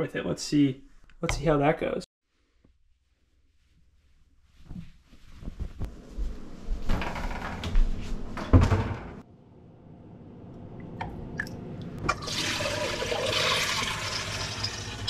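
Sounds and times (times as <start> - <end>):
water pouring through a colander: 12.1 - 15.0.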